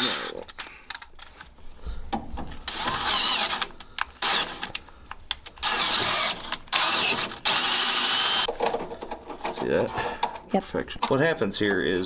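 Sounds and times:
cordless drill drilling steel: 0:02.7 - 0:04.7, 0:05.6 - 0:08.5.

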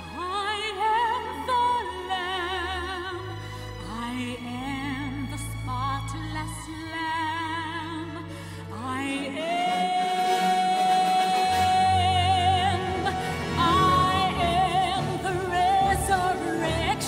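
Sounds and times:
musical accompaniment with bass: 0:00.0 - 0:17.0
woman singing gospel song: 0:08.8 - 0:17.0.

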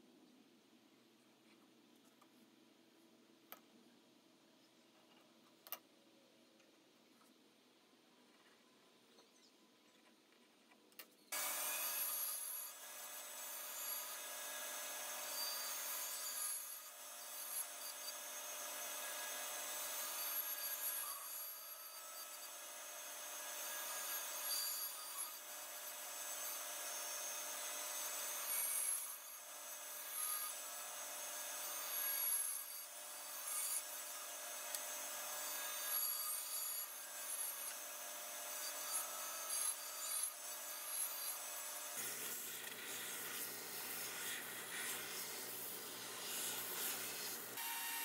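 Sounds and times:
bandsaw cutting wood: 0:11.3 - 0:48.0.

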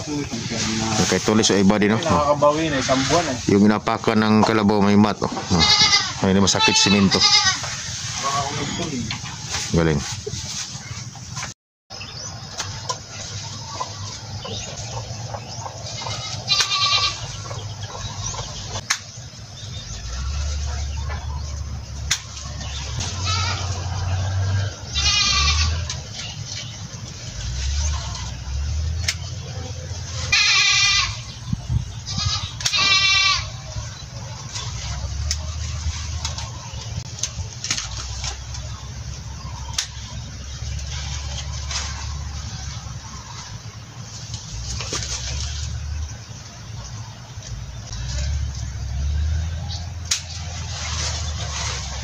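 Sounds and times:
goat bleating: 0:05.4 - 0:07.7, 0:15.9 - 0:17.4, 0:23.0 - 0:23.9, 0:24.9 - 0:26.0, 0:30.2 - 0:31.3, 0:32.1 - 0:33.6
rustling: 0:06.8 - 0:11.5.

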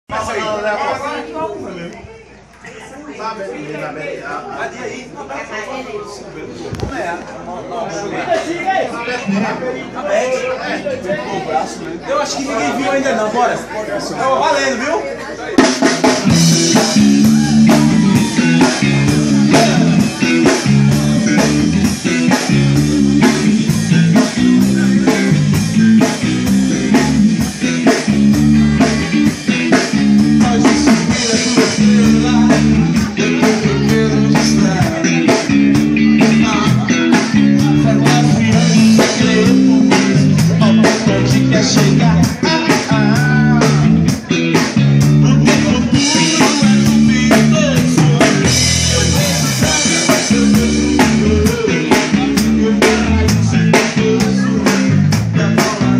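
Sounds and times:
drum kit: 0:15.6 - 0:55.9
electric guitar: 0:15.8 - 0:55.9
electric bass line: 0:16.1 - 0:55.9
person singing: 0:16.3 - 0:55.9.

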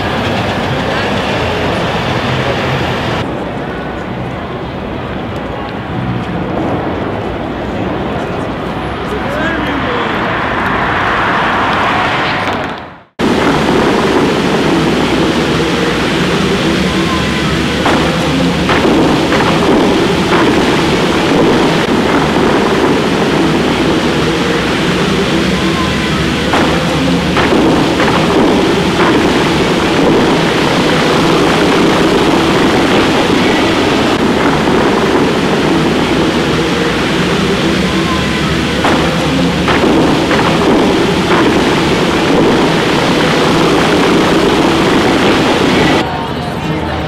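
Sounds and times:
water jets rushing and splashing: 0:13.2 - 0:46.0
faint music: 0:13.2 - 0:47.0.

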